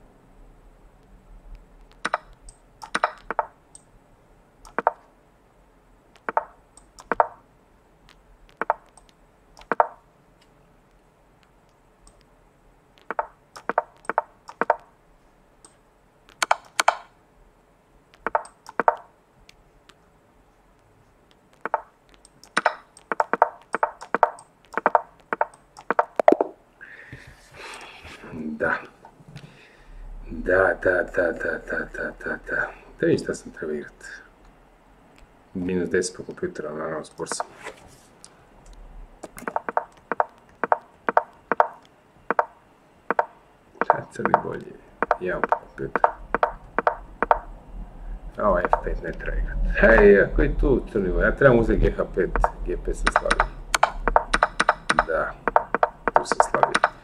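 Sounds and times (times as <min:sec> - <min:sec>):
chess piece clicks: 0:01.8 - 0:03.9, 0:04.7 - 0:05.1, 0:06.1 - 0:07.4, 0:08.1 - 0:10.0, 0:13.0 - 0:14.9, 0:15.6 - 0:17.1, 0:18.2 - 0:19.1, 0:21.2 - 0:26.5, 0:39.2 - 0:42.5, 0:43.1 - 0:47.4, 0:52.4 - 0:57.0.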